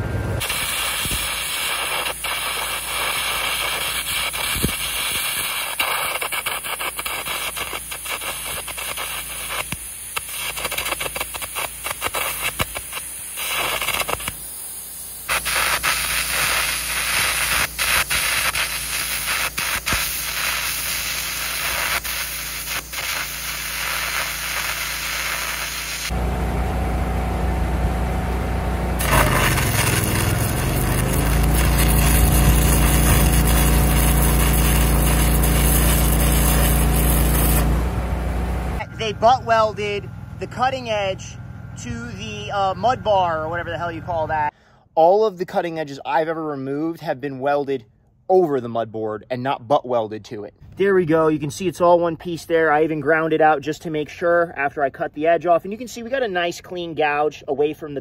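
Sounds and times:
crackling hissing electric arc: 0.4 - 26.2, 29.0 - 37.7.

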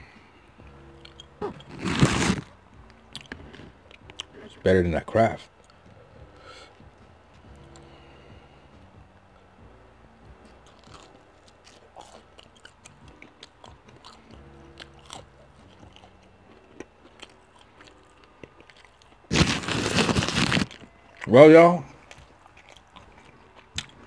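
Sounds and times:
low steady hum: 0.0 - 24.0
close-up chewing with mouth clicks: 3.1 - 4.6, 10.6 - 19.8, 21.9 - 24.0.

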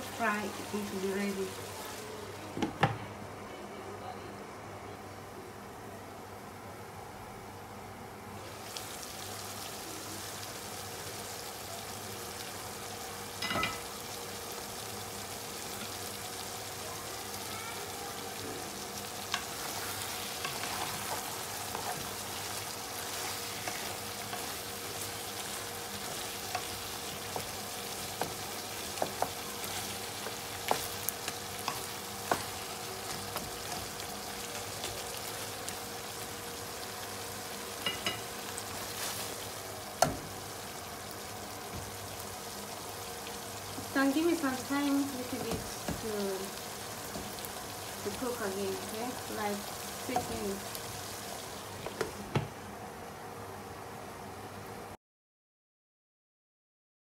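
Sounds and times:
stew sizzling in a frying pan: 0.0 - 2.8, 8.3 - 55.0
wooden spatula scraping a pan: 19.5 - 34.0, 38.6 - 39.6.

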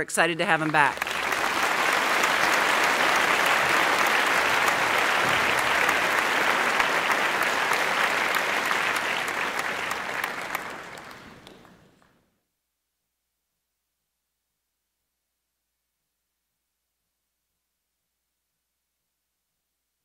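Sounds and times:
audience applauding: 0.0 - 12.1.

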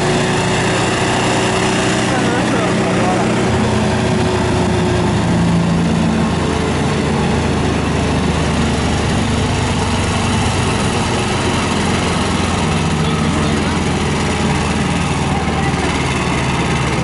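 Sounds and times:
wood chipper engine running: 0.0 - 17.0.

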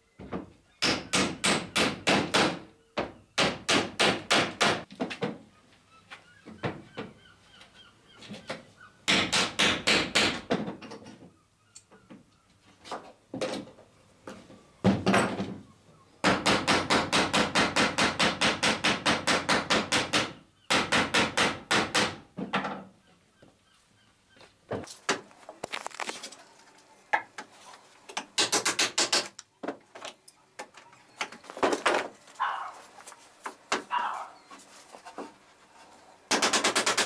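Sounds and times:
hammer riveting copper nails: 28.2 - 29.4, 36.3 - 37.0.

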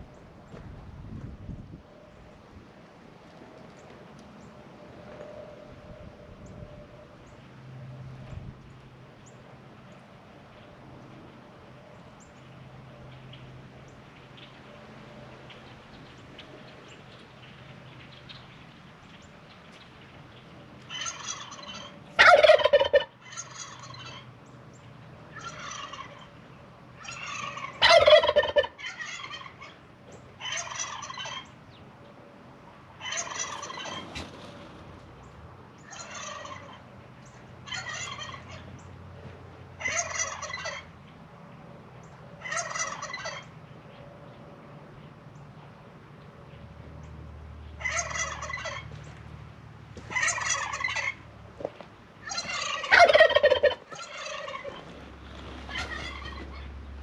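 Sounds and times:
turkeys gobbling: 20.4 - 24.3, 25.3 - 31.6, 33.0 - 35.0, 35.8 - 38.8, 39.8 - 40.9, 42.4 - 43.5, 47.7 - 49.0, 50.0 - 56.7.

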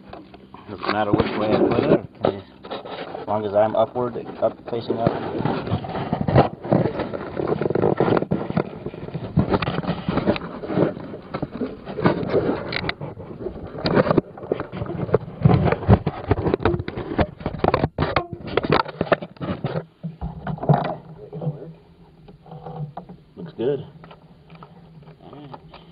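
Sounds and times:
microphone handling noise: 0.0 - 25.9.

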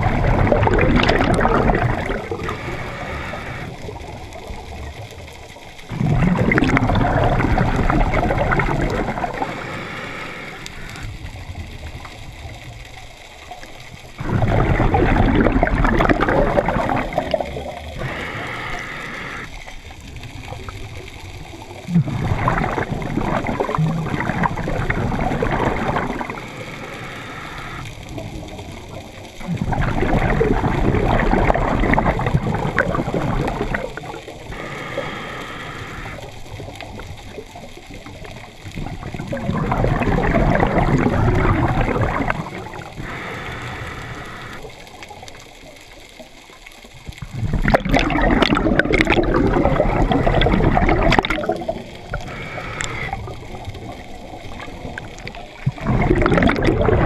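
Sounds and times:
exhaled bubbles rushing: 0.0 - 57.0
regulator hiss: 1.9 - 4.6, 7.3 - 11.4, 16.7 - 21.0, 24.9 - 28.1, 33.2 - 36.8, 41.9 - 45.0, 51.8 - 55.4.

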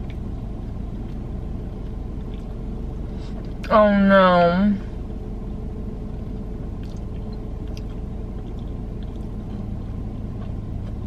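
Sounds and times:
car cabin hum: 0.0 - 11.0
mouth clicks of chewing: 6.8 - 9.7.

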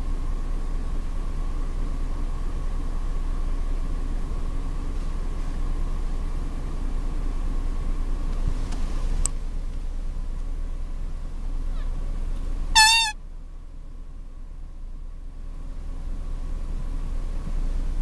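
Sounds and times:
low outdoor rumble: 0.0 - 18.0
high wavering squeal: 12.8 - 13.2.

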